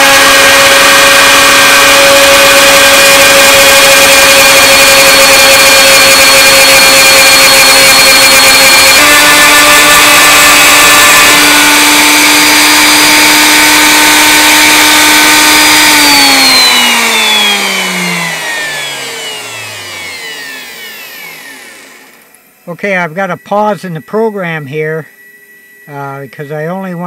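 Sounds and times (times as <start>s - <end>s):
router spindle whining: 0.0s - 27.0s.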